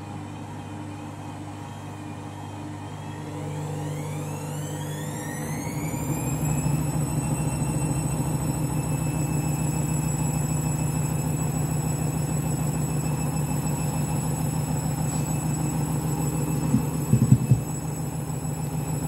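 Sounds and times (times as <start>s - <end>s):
washing machine spinning: 0.0s - 19.0s
knocks: 16.7s - 17.7s.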